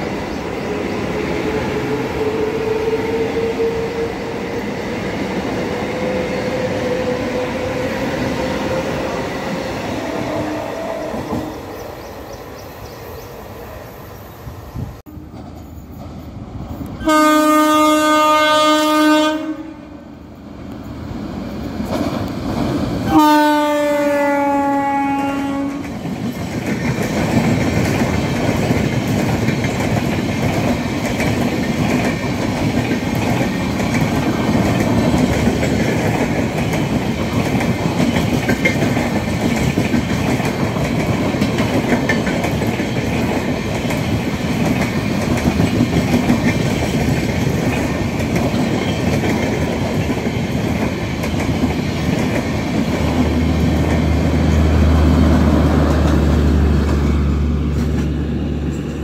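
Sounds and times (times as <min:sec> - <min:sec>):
train coaches rumbling past: 0:00.0 - 0:59.0
locomotive horn blasts: 0:17.0 - 0:20.0, 0:23.1 - 0:25.9.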